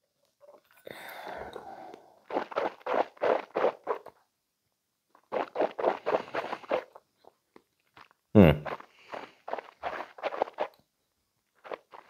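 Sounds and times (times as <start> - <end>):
breathy mouth sounds: 0.5 - 4.1, 5.3 - 7.0, 8.0 - 10.8
slurping sip from glass: 0.8 - 4.1, 5.3 - 7.0, 8.0 - 10.8.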